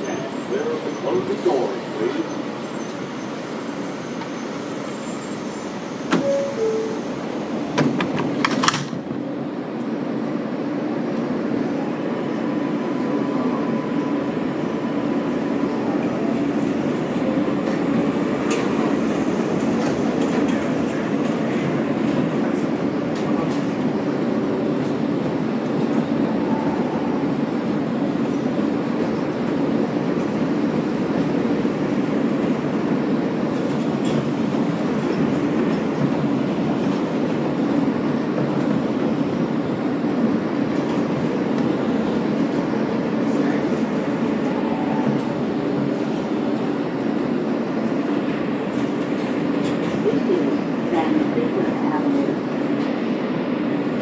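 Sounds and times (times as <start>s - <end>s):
train passing on adjacent track: 0.0s - 54.0s
train wheels rumbling on rail: 0.0s - 54.0s.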